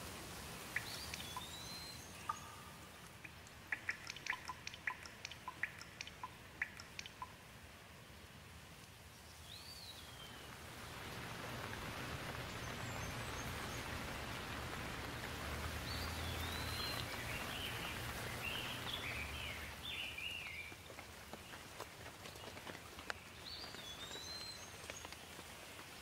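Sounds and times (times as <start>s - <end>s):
rain falling: 0.0s - 26.0s
bird chirping: 0.7s - 7.4s, 9.1s - 10.6s, 12.3s - 20.9s, 23.1s - 25.3s.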